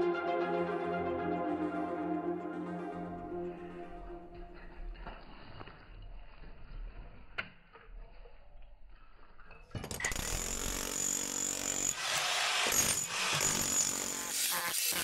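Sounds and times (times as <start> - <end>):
demolition hammer chiselling concrete: 9.8 - 15.0.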